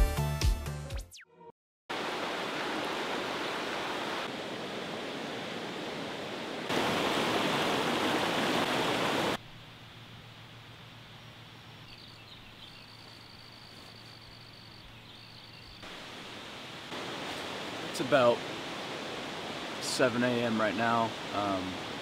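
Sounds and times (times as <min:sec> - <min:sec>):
river rushing over boulders: 0:01.9 - 0:09.4, 0:15.8 - 0:22.0.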